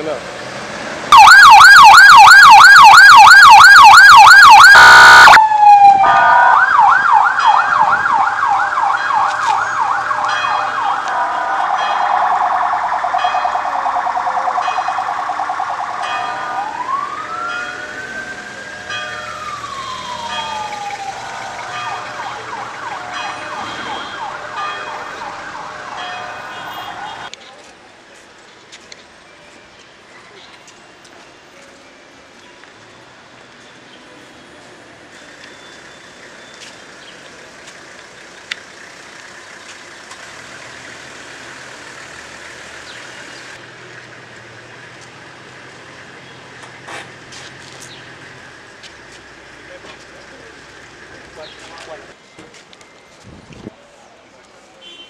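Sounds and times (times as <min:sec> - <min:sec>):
electronic siren yelp and wail: 0:01.1 - 0:25.8.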